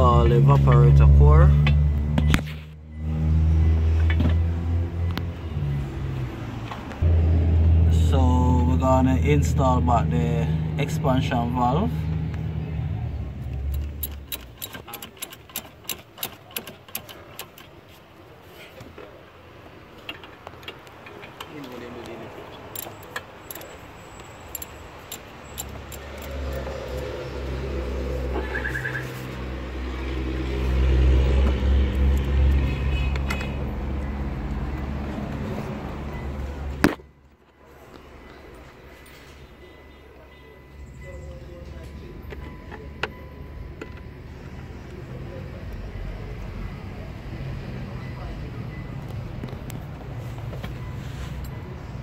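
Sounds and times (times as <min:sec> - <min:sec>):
light metallic clicks and clinks: 0:20.0 - 0:26.7.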